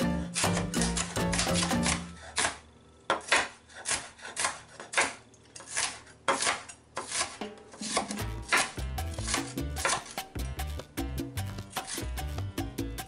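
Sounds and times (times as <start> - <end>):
background music: 0.0 - 2.1, 7.8 - 13.0
knife chopping on wooden board: 0.4 - 12.4.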